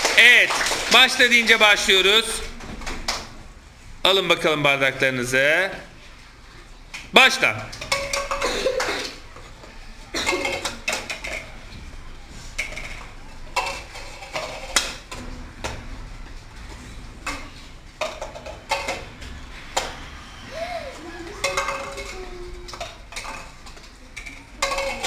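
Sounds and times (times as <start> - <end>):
plastic cups clacking on table: 6.9 - 25.0.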